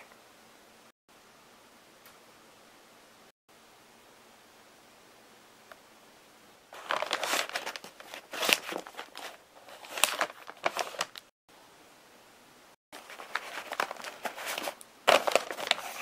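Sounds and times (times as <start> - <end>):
paper packaging crinkling: 6.8 - 11.3, 13.0 - 16.0.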